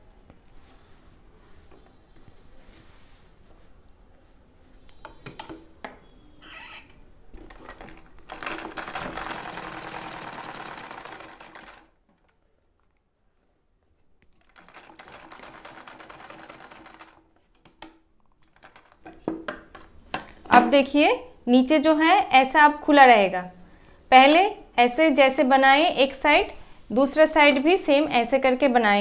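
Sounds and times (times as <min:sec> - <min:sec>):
sewing machine stitching: 0:07.5 - 0:11.9, 0:14.4 - 0:17.2.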